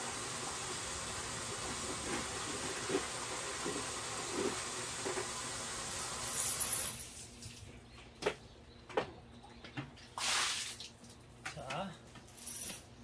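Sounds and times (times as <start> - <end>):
water running from tap: 0.0 - 6.9.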